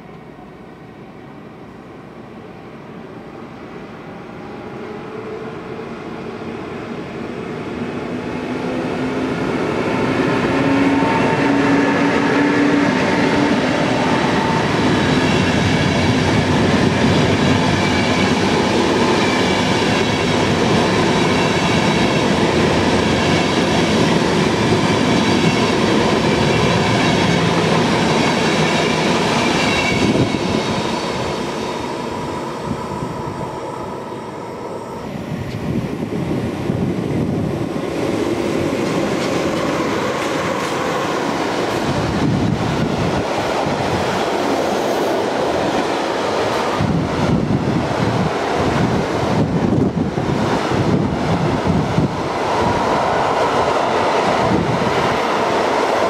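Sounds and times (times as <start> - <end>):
train approaching and passing: 0.0 - 56.0
train wheels clattering over rails: 38.0 - 56.0.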